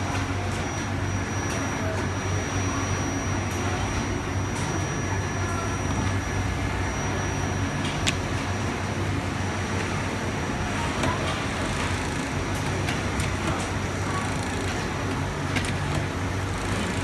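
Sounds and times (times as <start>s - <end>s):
sewing machine humming: 10.0s - 17.0s.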